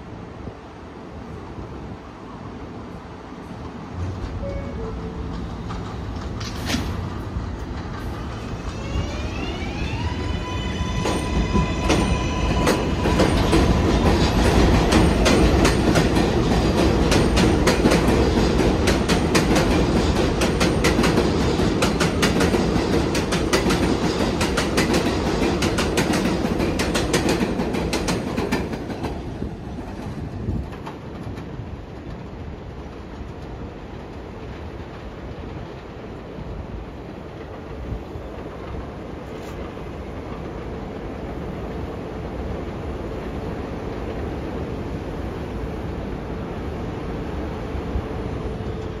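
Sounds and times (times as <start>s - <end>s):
subway train motor whine: 2.6s - 20.0s
train wheels clattering over rail joints: 5.1s - 9.0s, 11.0s - 35.9s.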